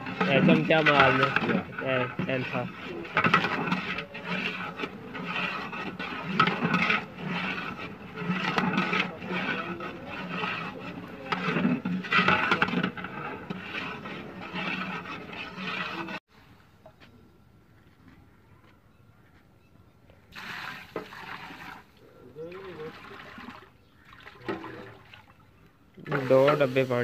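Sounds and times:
metal ladle scraping pot: 0.0s - 16.2s, 26.0s - 27.0s.

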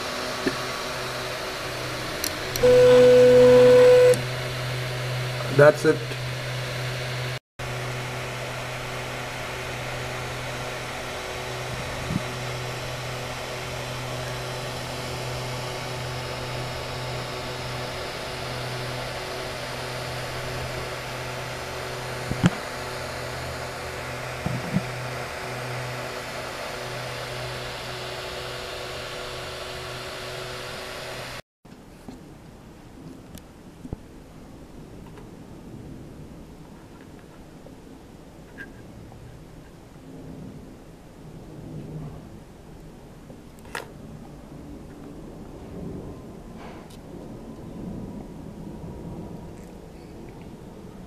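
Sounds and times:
cooling fans humming: 0.0s - 31.4s.

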